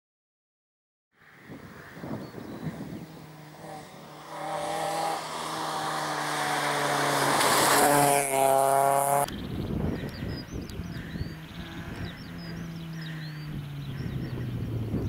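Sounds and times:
rally car engine passing by: 1.8 - 9.3, 11.2 - 15.0.

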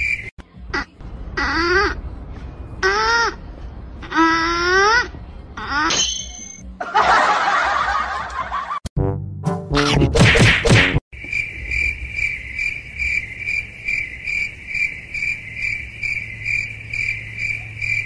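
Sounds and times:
cricket chirping: 0.0 - 0.3, 11.2 - 18.0.

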